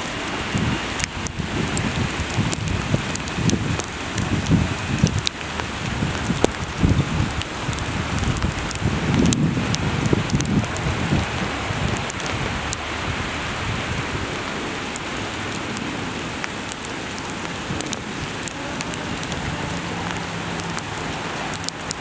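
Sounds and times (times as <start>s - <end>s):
rain drop ticks: 0.0s - 22.0s
steady rain hiss: 0.0s - 22.0s
train rumble: 17.0s - 22.0s.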